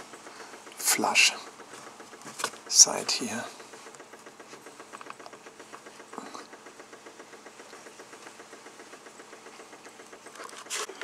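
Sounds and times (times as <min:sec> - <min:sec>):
small machine pulsing rhythmically: 0:00.0 - 0:11.0.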